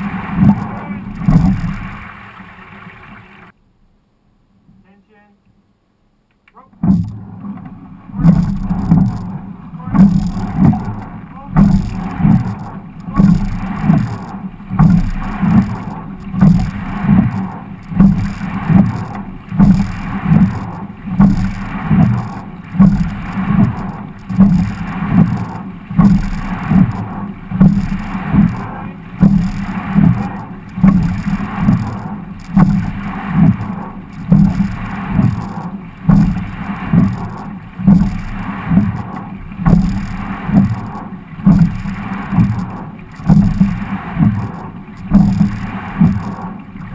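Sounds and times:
oars knocking in oarlocks: 0.0s - 2.0s, 8.2s - 46.5s
water running along hull: 0.0s - 3.6s, 6.6s - 46.9s.

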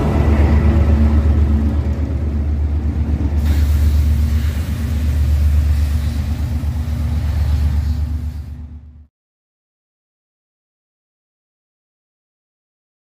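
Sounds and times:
diesel locomotive engine rumbling: 0.0s - 9.1s
high hiss: 3.4s - 8.6s.

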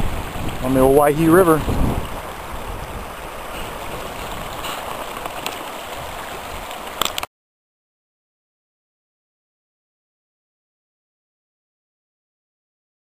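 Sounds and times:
fast river rushing over rocks: 0.0s - 7.3s.

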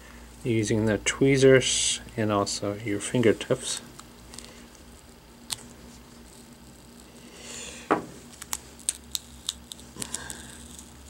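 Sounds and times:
adhesive tape crinkling: 3.5s - 7.3s, 8.2s - 11.0s.

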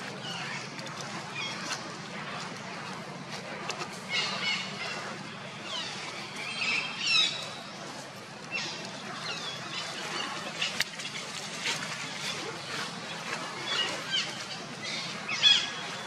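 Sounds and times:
birds chirping and calling: 0.1s - 2.6s, 3.9s - 7.8s, 8.4s - 16.0s.

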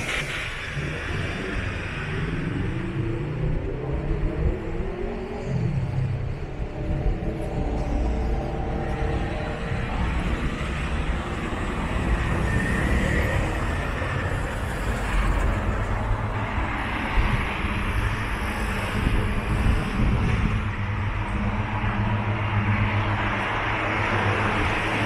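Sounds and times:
traffic engine and tyre rumble: 0.0s - 25.0s.

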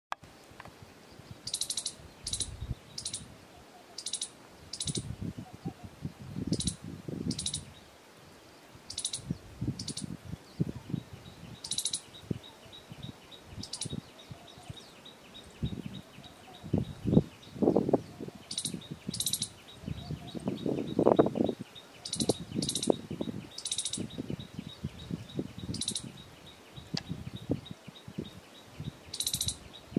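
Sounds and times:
squirrel chirping: 1.4s - 3.3s, 4.0s - 5.1s, 6.5s - 7.7s, 8.9s - 10.1s, 11.6s - 12.9s, 13.6s - 14.7s, 18.5s - 26.3s, 29.1s - 29.9s.

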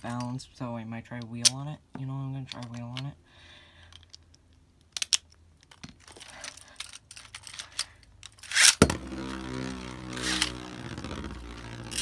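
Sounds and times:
launcher ripcord pulled: 7.7s - 12.0s
spinning top scraping rasp: 8.4s - 12.0s
spinning top clacking on glass: 8.5s - 12.0s
spinning top humming: 8.8s - 12.0s.

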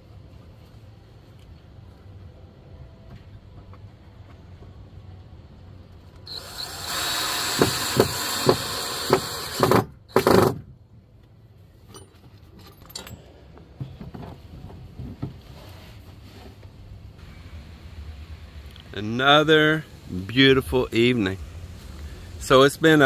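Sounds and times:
power drill driving screws: 6.3s - 10.6s.

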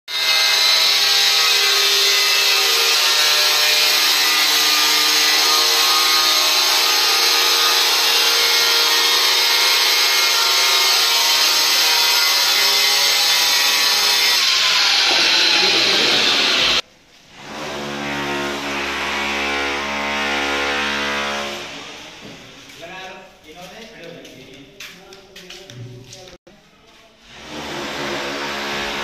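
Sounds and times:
electric stone cutter whining: 0.1s - 16.8s.

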